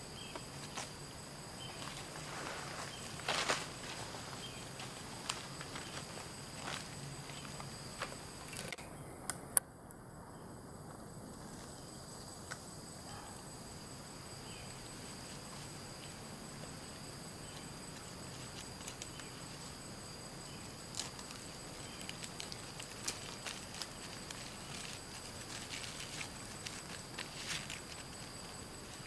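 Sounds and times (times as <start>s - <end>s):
insect drone: 0.0s - 29.0s
rustles in leaf litter: 0.4s - 8.7s, 14.6s - 29.0s.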